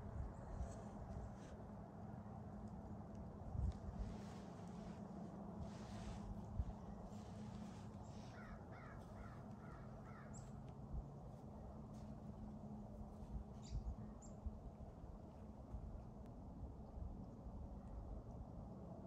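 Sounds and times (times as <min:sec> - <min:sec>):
distant crow cawing: 0:08.3 - 0:10.5.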